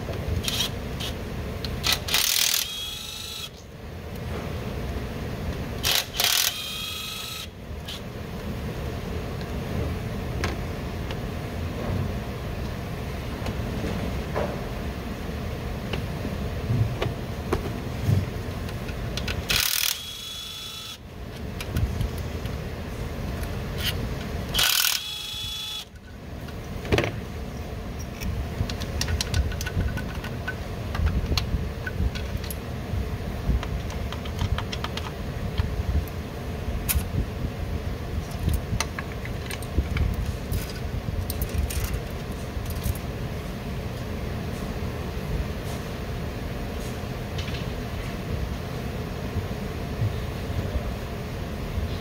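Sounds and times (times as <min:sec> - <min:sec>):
tools and metal parts clinking: 0:28.0 - 0:31.2, 0:38.2 - 0:43.1.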